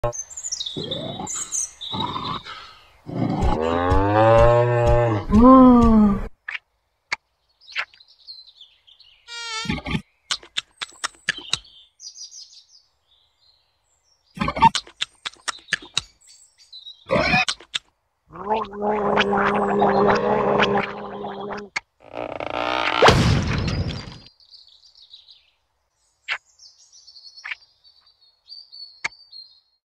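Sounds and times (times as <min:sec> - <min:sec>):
bird chirps: 0:00.0 - 0:03.4, 0:07.5 - 0:18.5, 0:23.5 - 0:29.8
sharp clicks: 0:10.3 - 0:11.7, 0:14.8 - 0:16.1
insect-like buzzing: 0:20.6 - 0:23.1.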